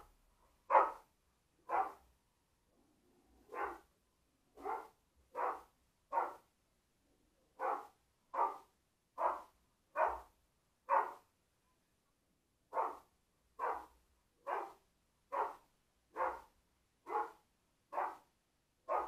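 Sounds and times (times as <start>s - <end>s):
dog barking: 0.6s - 2.0s, 3.4s - 3.9s, 4.6s - 6.5s, 7.6s - 11.3s, 12.7s - 19.0s.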